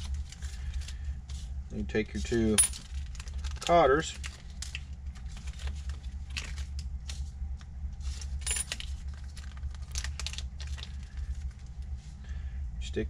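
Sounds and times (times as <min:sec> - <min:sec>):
steady low hum: 0:00.0 - 0:13.0
small metal parts clinking: 0:02.4 - 0:04.8, 0:08.1 - 0:10.9.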